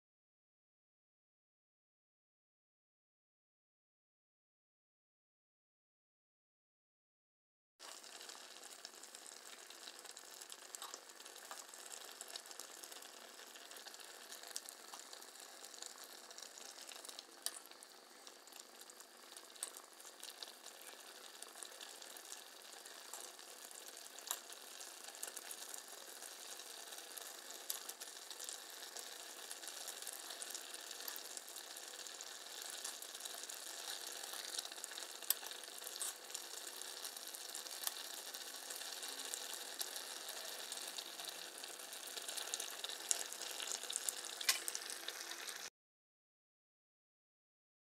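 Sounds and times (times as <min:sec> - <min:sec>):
gravy sizzling and bubbling: 0:07.8 - 0:45.7.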